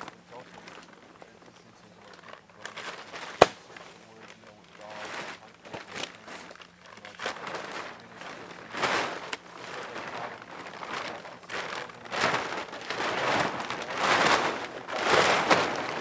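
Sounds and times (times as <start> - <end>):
tarp rustling and crinkling: 0.0 - 16.0.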